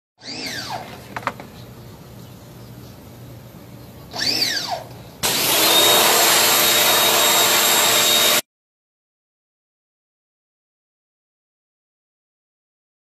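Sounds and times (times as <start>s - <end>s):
pressure washer whine: 4.2s - 8.4s.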